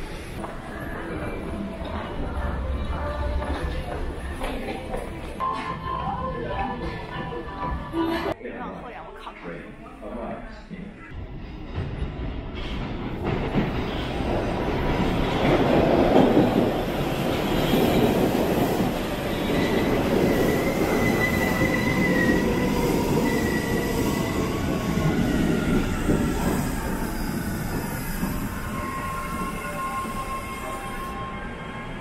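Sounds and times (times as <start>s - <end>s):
subway train rumble: 0.0s - 8.4s, 10.1s - 32.0s
wheels squealing: 18.9s - 31.3s.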